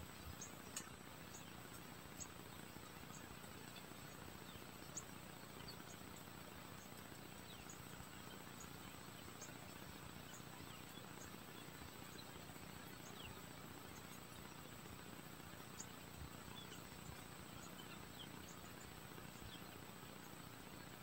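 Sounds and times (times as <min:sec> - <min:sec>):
light ticks: 0:00.1 - 0:02.6.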